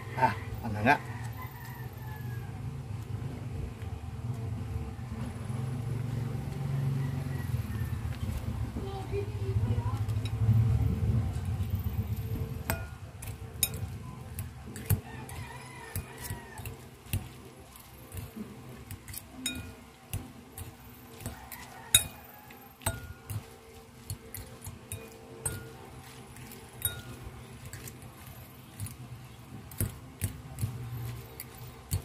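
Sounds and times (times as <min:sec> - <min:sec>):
utensil clinking against a dish: 0:12.3 - 0:32.0.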